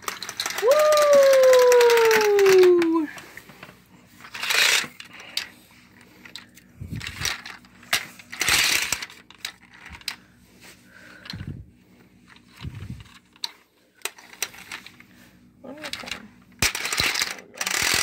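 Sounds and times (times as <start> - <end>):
beads rattling in plastic toy: 0.0 - 3.1, 4.2 - 5.5, 6.3 - 10.2, 15.7 - 18.0
plastic toy clattering: 0.0 - 10.2, 12.3 - 15.0, 15.7 - 18.0.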